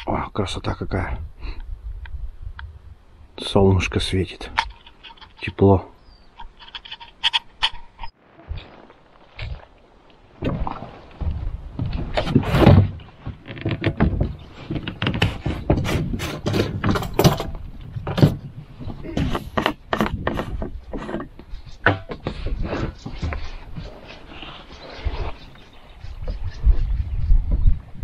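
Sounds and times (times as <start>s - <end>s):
rustling: 6.1s - 21.3s.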